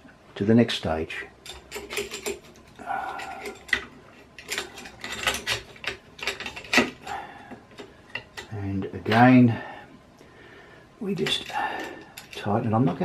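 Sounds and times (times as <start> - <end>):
metal parts clicking and knocking: 1.4 - 9.4, 11.1 - 13.0.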